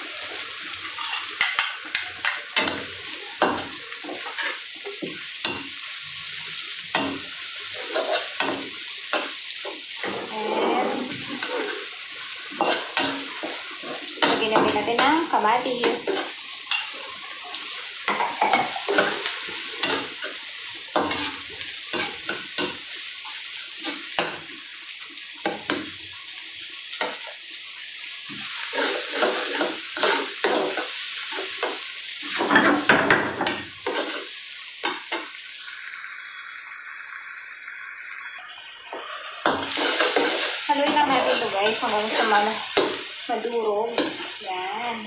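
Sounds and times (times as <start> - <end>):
food sizzling in oil: 0.0 - 45.0
spatula scraping a pan: 0.8 - 6.0, 6.9 - 22.9, 23.7 - 24.5, 28.3 - 35.3, 39.0 - 44.4.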